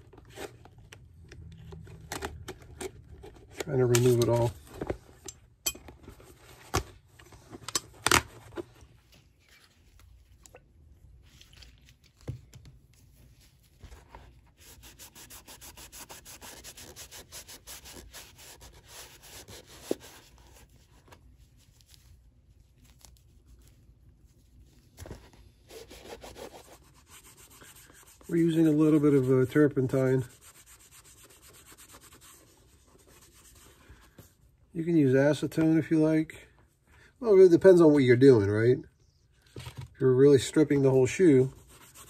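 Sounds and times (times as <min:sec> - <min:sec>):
cloth rubbing leather: 0:14.5 - 0:20.8, 0:25.6 - 0:33.7.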